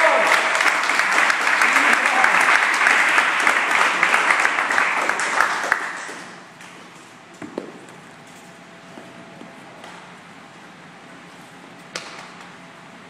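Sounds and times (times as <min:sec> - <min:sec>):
people applauding: 0:00.0 - 0:06.6.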